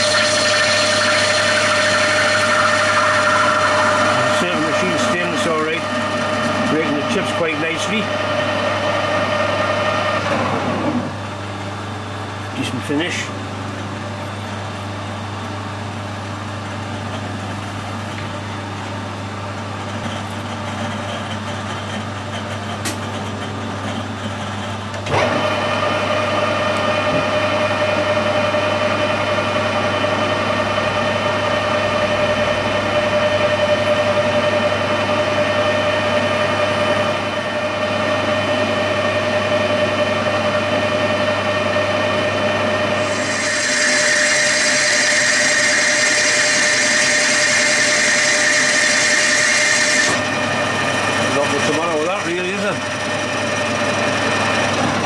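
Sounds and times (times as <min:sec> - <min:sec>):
hissing metal cutting: 0:00.0 - 0:08.1, 0:43.0 - 0:52.9
metal lathe hum with gear whine: 0:00.0 - 0:55.0.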